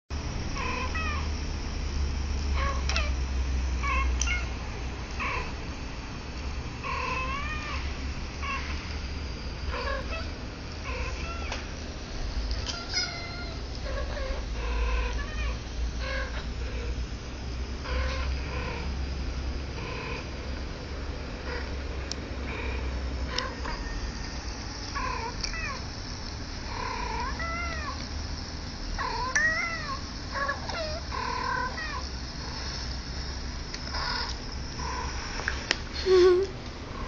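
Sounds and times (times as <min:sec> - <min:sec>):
low steady hum: 0:00.1 - 0:37.0
kittens mewing: 0:29.0 - 0:32.7.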